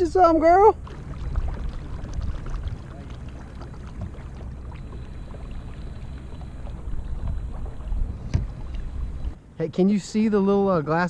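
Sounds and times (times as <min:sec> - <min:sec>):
water lapping and splashing: 0:00.0 - 0:09.5.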